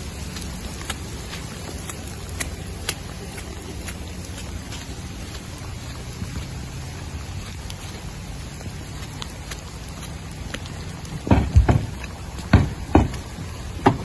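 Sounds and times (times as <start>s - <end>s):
heavy rain falling: 0.0s - 14.0s
dull thumps: 11.2s - 14.0s.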